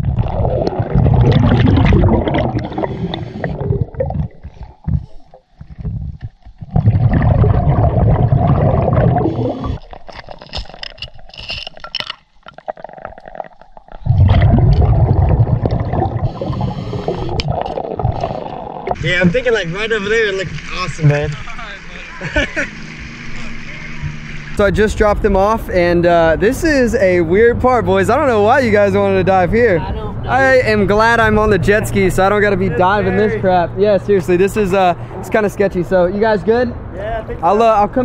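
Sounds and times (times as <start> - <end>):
underwater gurgling bubbles: 0.0 - 10.2, 12.4 - 19.3.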